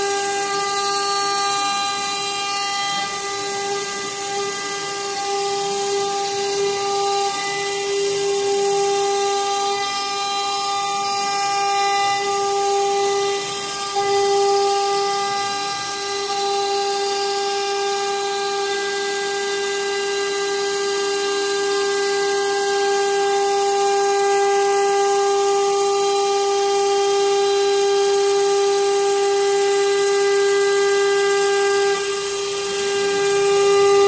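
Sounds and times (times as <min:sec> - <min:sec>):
router spindle whining: 0:00.0 - 0:34.0.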